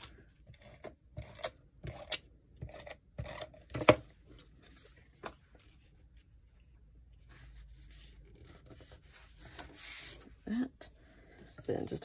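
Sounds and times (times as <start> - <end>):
paper rustling and scraping: 4.3 - 10.3.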